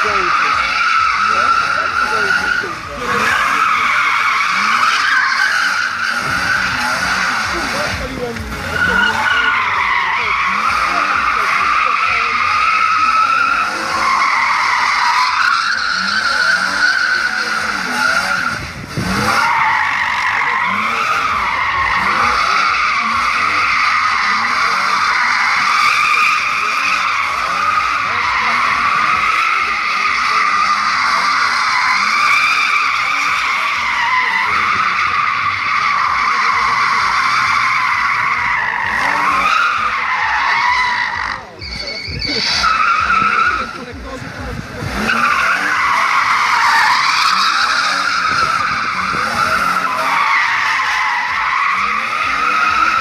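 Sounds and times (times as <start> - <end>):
car engine revving: 0.0 - 53.0
tyres squealing: 0.0 - 53.0.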